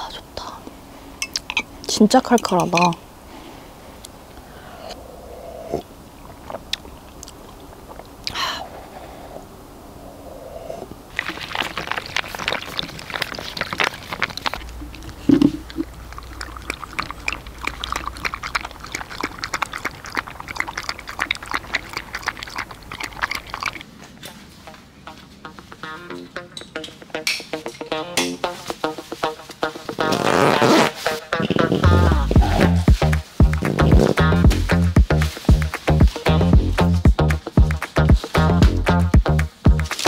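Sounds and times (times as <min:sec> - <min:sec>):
dogs crunching food: 0:11.1 - 0:24.1.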